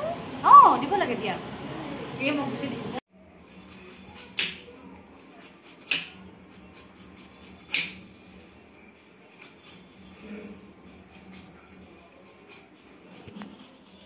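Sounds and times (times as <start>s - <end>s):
knife cutting pineapple rind: 3.2s - 14.0s.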